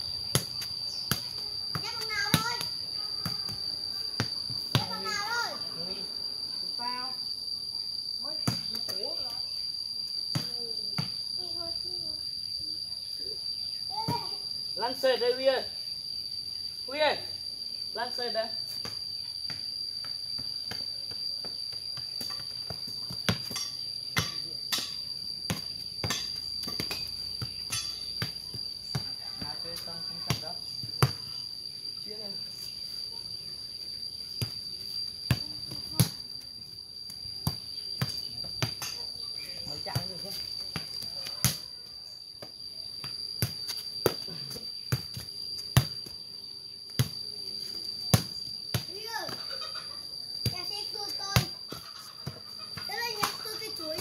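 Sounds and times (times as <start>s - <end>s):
high-pitched insect drone: 0.0s - 54.0s
ball kicked with bare feet: 0.2s - 5.1s, 10.3s - 11.6s, 18.8s - 24.5s, 25.4s - 31.4s, 34.4s - 34.6s, 35.2s - 36.4s, 37.1s - 41.7s, 42.4s - 46.2s, 46.9s - 49.4s
football thudding on concrete: 0.3s - 5.0s, 43.1s - 46.1s, 48.1s - 49.4s.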